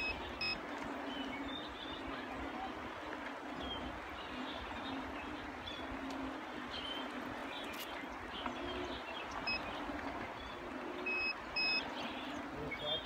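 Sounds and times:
small birds chirping: 3.6s - 13.0s.

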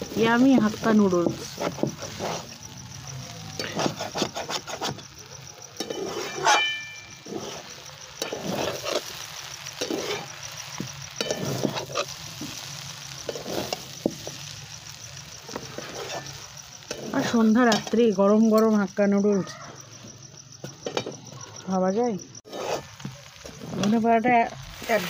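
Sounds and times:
light sizzle: 0.0s - 25.0s
spatula scraping metal pan: 0.6s - 2.6s, 3.6s - 5.1s, 5.8s - 10.4s, 11.2s - 12.6s, 15.5s - 18.1s, 22.4s - 24.0s
sharp metal clank: 6.2s - 7.1s.

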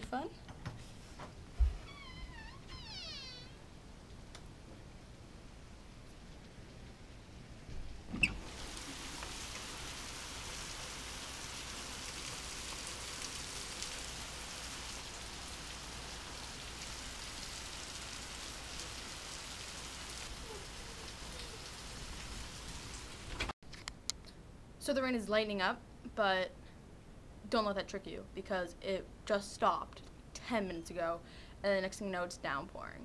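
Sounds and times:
steady rain falling: 1.6s - 23.6s.

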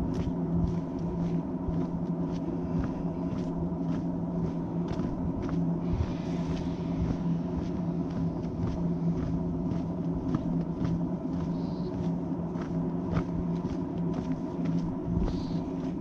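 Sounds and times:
footsteps: 0.0s - 16.0s
low drone: 0.0s - 16.0s.

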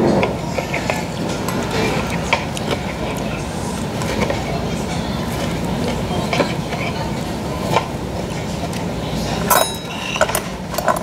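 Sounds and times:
cutlery clinking on dishes: 9.5s - 11.0s.

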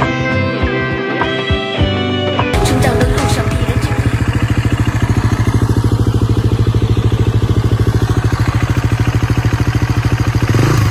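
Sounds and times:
dirt bike engine idling: 2.6s - 10.9s.

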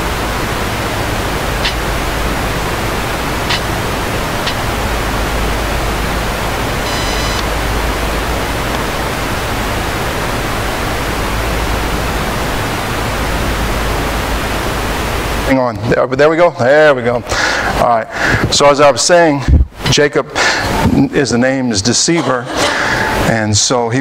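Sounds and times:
low hum: 0.0s - 15.5s
static hiss: 0.0s - 22.2s
short buzzy tone: 6.8s - 7.5s.

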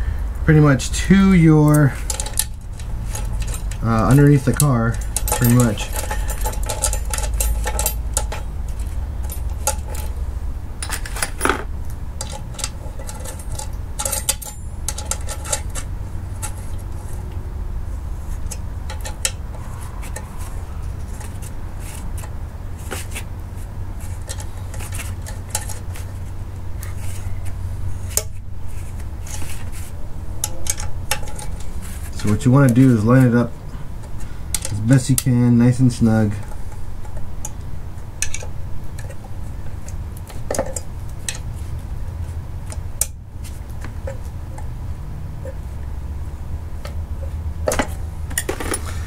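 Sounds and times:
steady low rumble: 0.0s - 40.2s
metal clinks of bolts and nuts: 1.7s - 10.2s, 10.8s - 16.7s, 30.4s - 31.7s.

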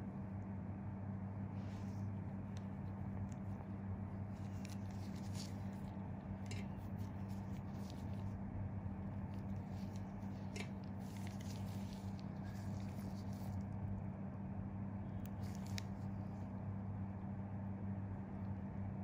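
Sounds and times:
steady low hum: 0.0s - 19.0s
rustles of cotton pads on skin: 1.1s - 14.0s, 15.2s - 16.6s.

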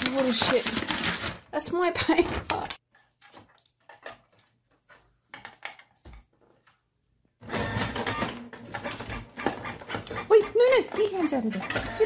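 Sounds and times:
paper rustling: 0.0s - 5.2s
printer printing and feeding paper: 7.4s - 12.0s.

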